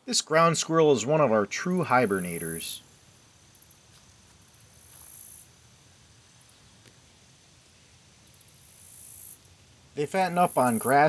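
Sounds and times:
insect calling: 0.0s - 11.0s.

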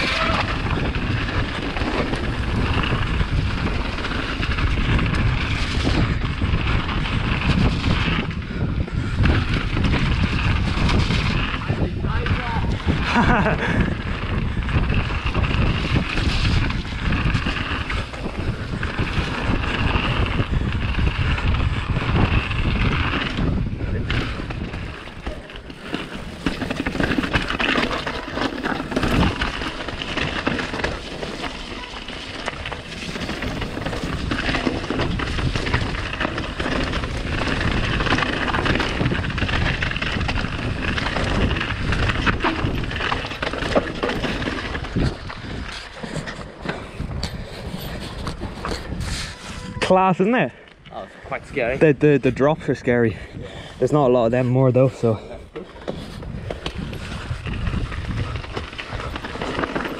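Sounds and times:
bike tyres and frame rattling: 0.0s - 59.9s
wind noise on microphone: 0.0s - 59.9s.

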